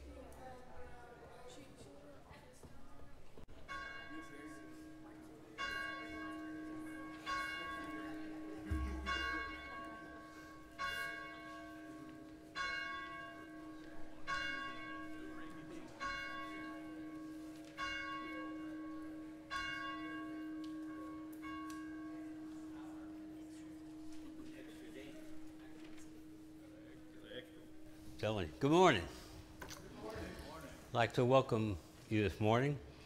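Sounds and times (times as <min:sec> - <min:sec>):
church bell tolling: 0:03.5 - 0:29.6.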